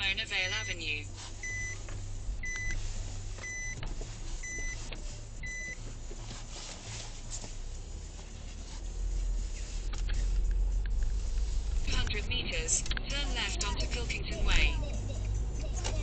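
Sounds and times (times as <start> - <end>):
car driving rumble: 0.0 - 16.0
car electronic chime beeping: 0.2 - 5.9.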